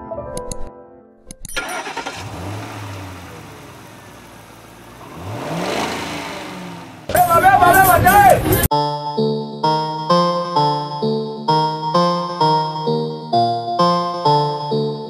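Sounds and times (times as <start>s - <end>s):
minibus engine revving: 1.6s - 8.7s
street noise: 2.2s - 8.7s.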